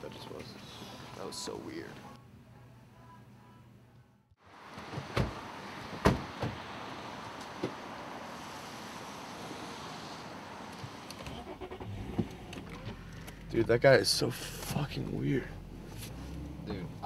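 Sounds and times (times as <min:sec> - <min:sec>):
steady hiss: 0:04.5 - 0:11.1
car doors shutting: 0:04.7 - 0:06.8, 0:07.4 - 0:08.0, 0:10.6 - 0:13.6.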